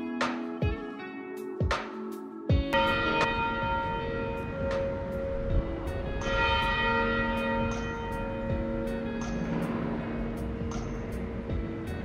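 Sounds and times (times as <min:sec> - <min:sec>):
bell ringing: 0:02.8 - 0:11.1.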